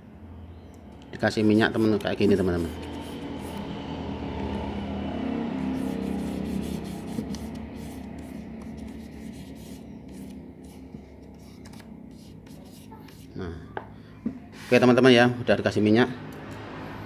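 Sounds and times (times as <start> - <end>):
palm rubbing sandpaper: 1.4 - 3.7, 5.6 - 13.4.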